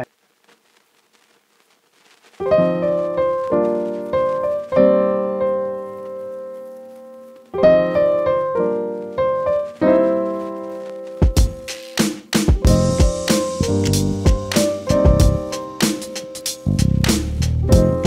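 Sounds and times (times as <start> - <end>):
solo piano chords: 2.4 - 11.7, 12.6 - 16.4, 17.6 - 18.0.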